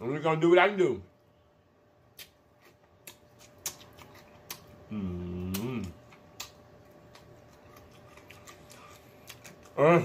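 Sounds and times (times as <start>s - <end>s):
man chewing with mouth clicks: 2.1s - 10.0s
man humming mmm: 4.9s - 6.0s.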